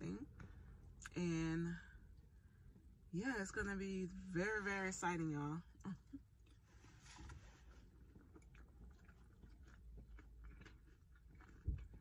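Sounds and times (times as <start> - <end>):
faint chewing with small crunches: 5.6 - 12.0.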